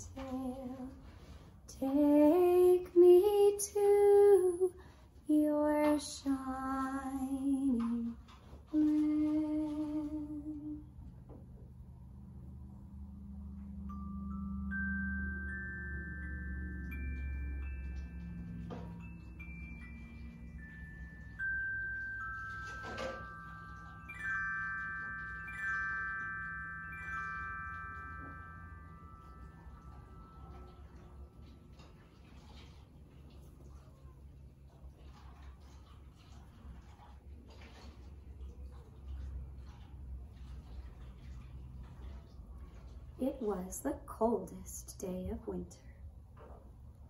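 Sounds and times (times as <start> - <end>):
woman singing unaccompanied: 0.0 - 1.1, 1.7 - 10.9
glockenspiel descending runs: 12.1 - 32.7.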